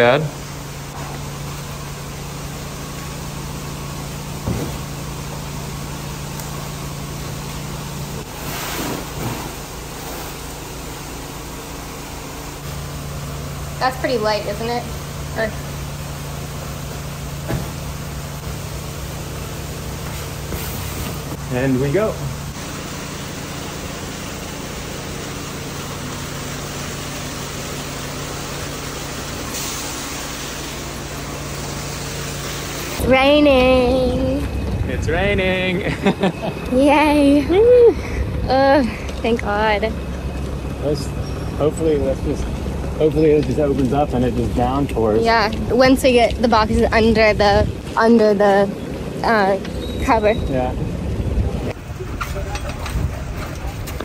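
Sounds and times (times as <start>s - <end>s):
steady low hum: 0.0s - 54.0s
water gushing from hose: 7.2s - 11.6s, 22.6s - 33.0s
sliding scrape: 8.2s - 10.4s.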